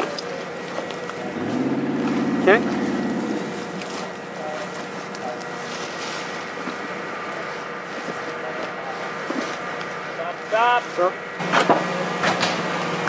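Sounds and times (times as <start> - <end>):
outdoor noise: 0.0 - 13.0
motor running: 1.2 - 5.1.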